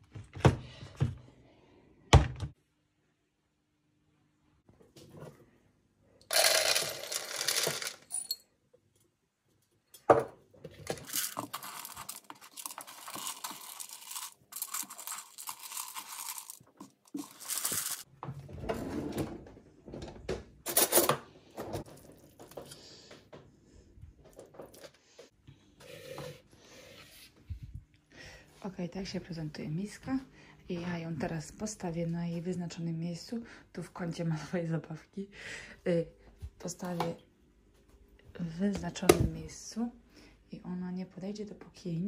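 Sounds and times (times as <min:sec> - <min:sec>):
kibble poured into plastic bowl: 0:06.3 - 0:08.1, 0:10.8 - 0:18.0
pellets rustling and clicking: 0:06.3 - 0:08.2, 0:10.8 - 0:18.1
dull food handling sounds: 0:10.6 - 0:18.1.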